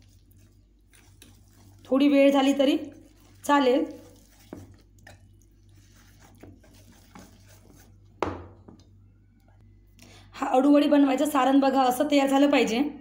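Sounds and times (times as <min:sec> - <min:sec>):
whisk stirring batter in metal bowl: 0:00.0 - 0:08.2.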